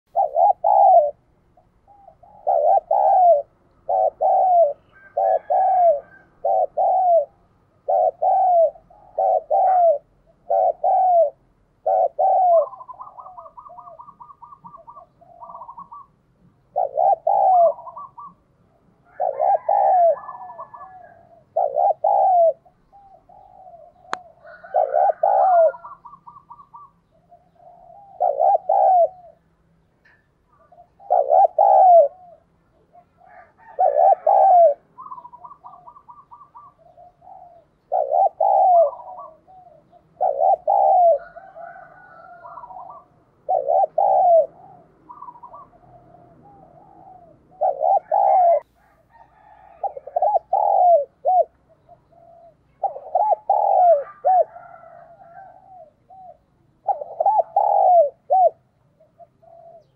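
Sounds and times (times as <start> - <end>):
dove cooing: 0.1 - 59.9
small birds chirping: 11.8 - 59.9.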